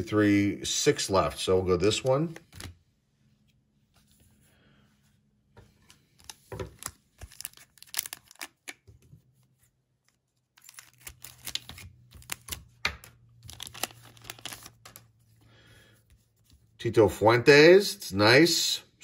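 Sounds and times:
plastic wrapper tearing and crinkling: 6.2 - 8.8, 10.5 - 15.1.

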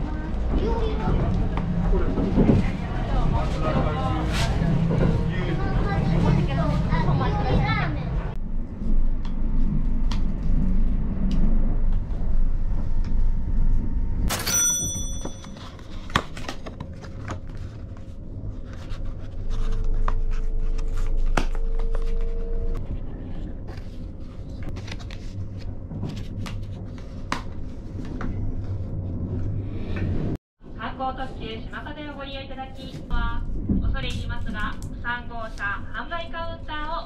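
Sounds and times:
train rumble: 0.0 - 14.3, 16.9 - 37.0
short bright ding: 14.3 - 15.6.

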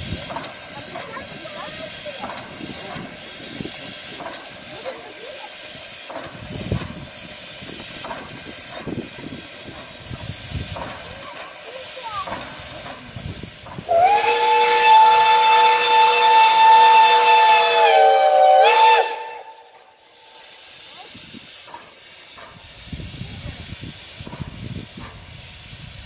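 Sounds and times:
steam locomotive hissing: 0.0 - 26.0
steam whistle blast: 13.9 - 20.3.

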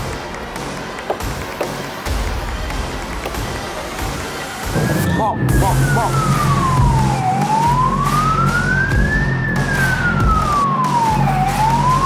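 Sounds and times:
wailing siren: 4.6 - 12.0.

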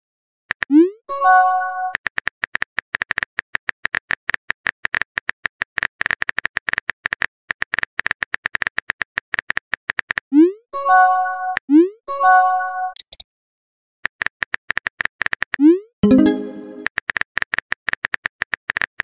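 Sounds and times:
phone keyboard typing clicks: 12.9 - 13.2.

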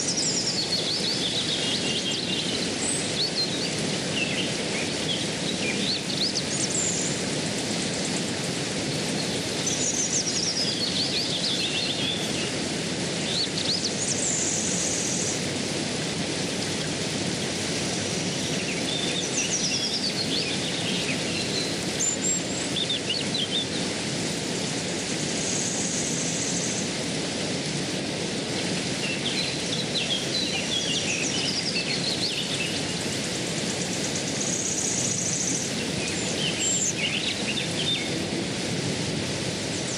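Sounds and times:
birds singing: 0.0 - 8.4, 9.0 - 15.5, 17.9 - 24.0, 28.5 - 38.6
stream flowing: 0.0 - 39.9.

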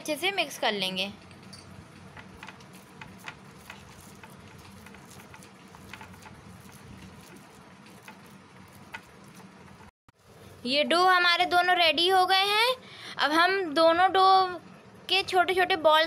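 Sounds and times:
hands kneading dough: 2.2 - 9.9.

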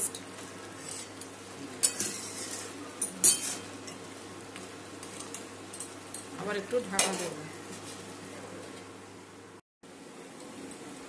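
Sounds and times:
vegetables sizzling: 0.0 - 9.1
spatula scraping metal pan: 1.9 - 3.6.

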